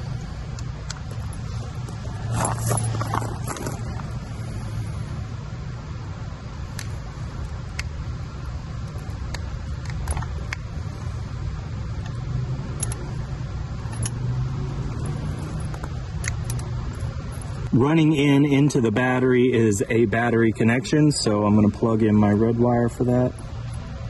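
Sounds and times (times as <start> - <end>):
low background rumble: 0.0 - 24.0
wiring connectors clicking and rattling: 8.8 - 10.7, 15.0 - 17.7.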